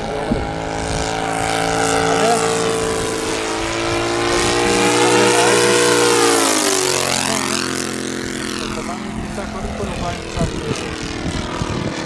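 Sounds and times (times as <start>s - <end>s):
model plane engine flypast: 0.0s - 12.0s.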